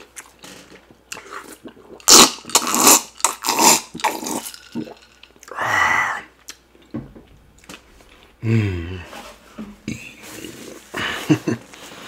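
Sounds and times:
man gulping a drink: 0.0s - 8.4s.

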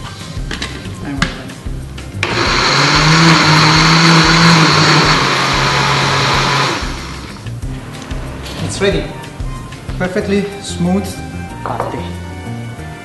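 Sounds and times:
blender running: 2.2s - 8.6s.

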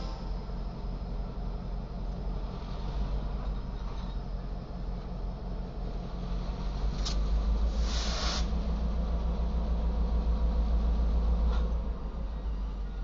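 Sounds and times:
locomotive engine rumble: 0.0s - 13.0s
brief hiss: 7.0s - 8.6s.

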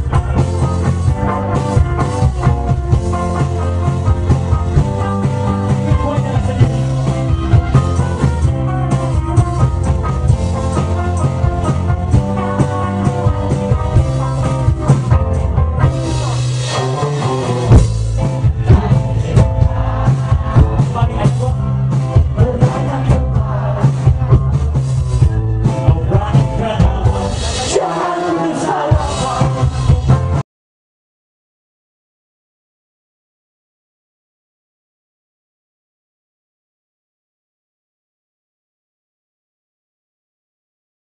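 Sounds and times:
bass: 0.0s - 30.4s
drum kit: 0.0s - 30.4s
electric guitars: 0.0s - 30.4s.

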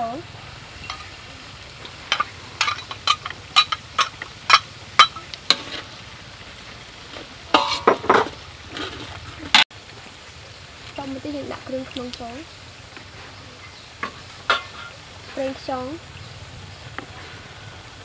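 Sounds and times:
low frying sizzle: 0.0s - 18.0s
metal spatula scraping a wok: 2.1s - 6.0s, 7.1s - 9.2s, 14.5s - 15.4s.

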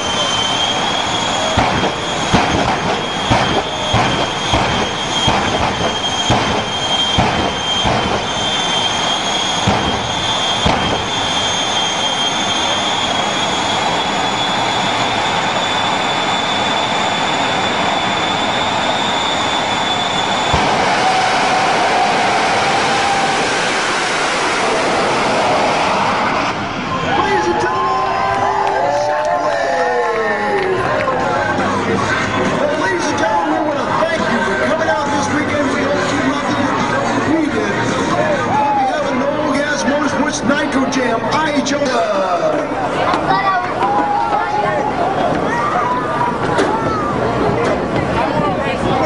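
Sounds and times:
sharp bangs: 0.0s - 12.5s, 19.5s - 28.7s
jet engine rushing roar: 0.0s - 49.0s
jet engine whine: 0.0s - 49.0s.

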